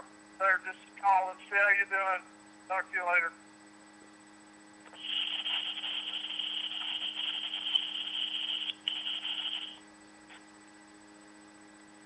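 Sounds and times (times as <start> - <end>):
scratchy hiss from phone speaker: 4.9 - 10.4.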